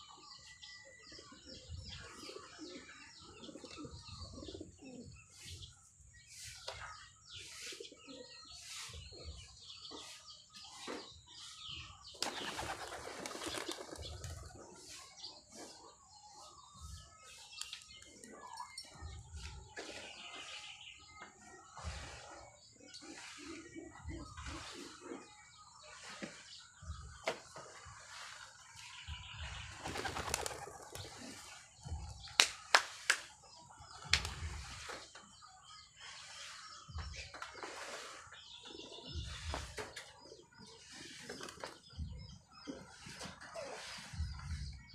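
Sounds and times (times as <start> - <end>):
pigeons cooing: 2.1 - 5.2
pigeons flapping wings: 12.2 - 14.5, 29.8 - 31.4.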